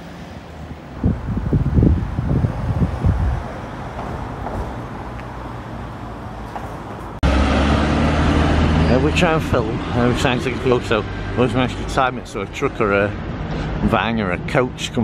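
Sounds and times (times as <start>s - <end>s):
steady outdoor rumble: 0.0s - 15.0s
wind buffeting microphone: 0.8s - 5.6s.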